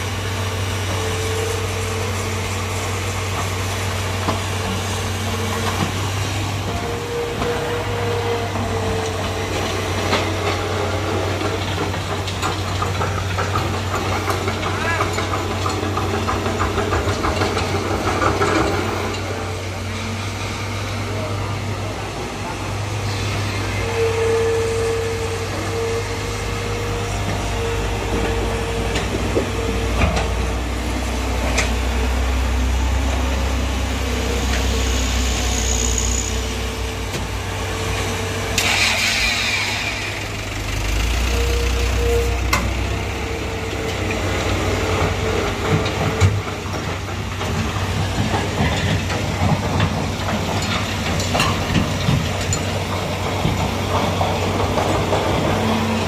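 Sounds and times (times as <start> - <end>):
excavator diesel engine running: 0.0 - 56.0
knocks and clatters: 9.6 - 19.2, 43.9 - 56.0
hydraulic whine: 17.9 - 46.5.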